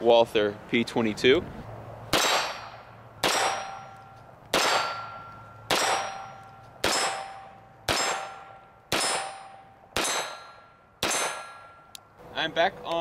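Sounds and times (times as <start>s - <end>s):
pistol shots: 2.1s - 11.9s
bullet clanging on steel target: 2.2s - 12.1s.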